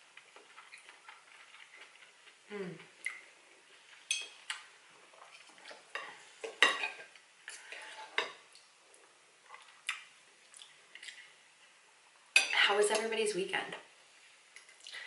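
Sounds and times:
cutlery clinking on plate: 6.4s - 7.1s.

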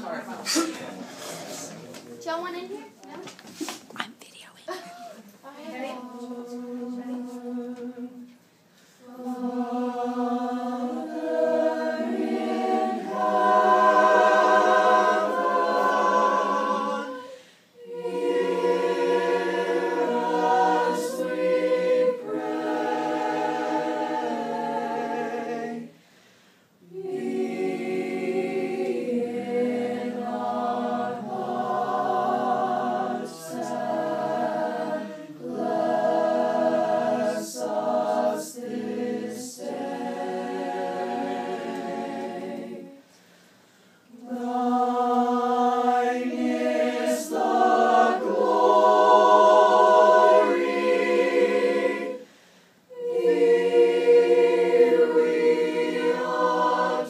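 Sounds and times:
group singing a cappella: 5.6s - 57.0s.

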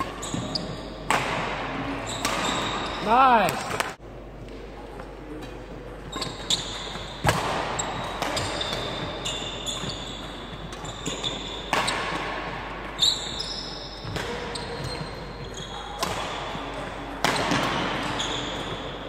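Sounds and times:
shoes squeaking on wooden floor: 0.0s - 1.1s, 6.0s - 12.1s, 13.0s - 16.0s, 17.4s - 19.0s
racket hitting shuttlecock: 0.0s - 2.9s, 6.2s - 12.7s, 16.0s - 19.0s.

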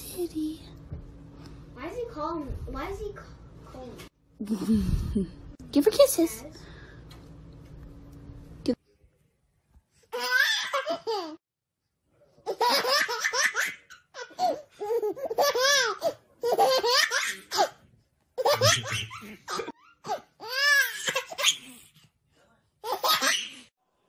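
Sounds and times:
baby laughing: 10.1s - 11.4s, 12.5s - 17.8s, 18.4s - 21.8s, 22.8s - 23.7s.

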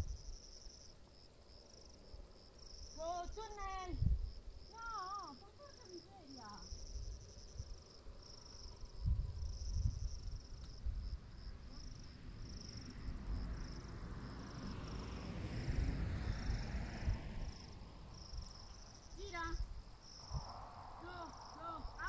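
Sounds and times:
crickets chirping: 0.0s - 22.0s
distant car passing: 11.5s - 19.1s.

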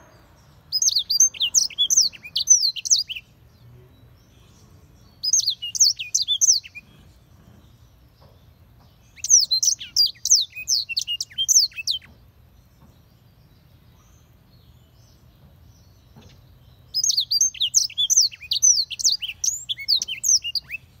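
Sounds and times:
canary singing: 0.0s - 21.0s.

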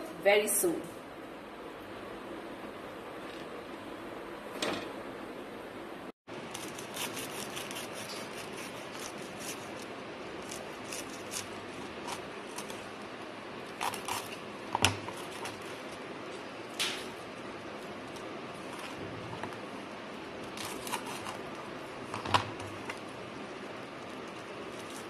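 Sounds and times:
knife cutting crisp sandwich: 6.6s - 9.8s, 10.4s - 12.8s, 13.7s - 14.4s, 20.5s - 21.4s.

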